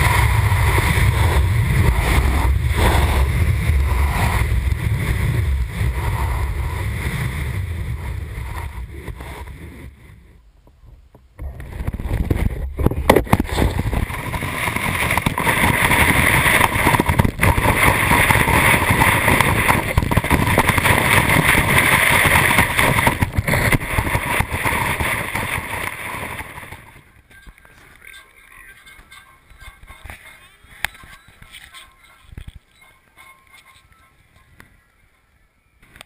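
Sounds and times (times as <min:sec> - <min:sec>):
snowboard edge carving snow: 0:00.0 - 0:10.3, 0:11.4 - 0:27.1
wind on microphone: 0:00.0 - 0:27.6.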